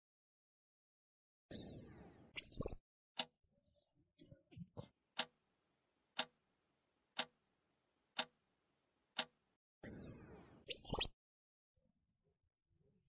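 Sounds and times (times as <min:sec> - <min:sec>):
clock ticking: 0:05.2 - 0:05.4, 0:06.2 - 0:06.4, 0:07.2 - 0:07.4, 0:08.2 - 0:08.4, 0:09.2 - 0:09.4.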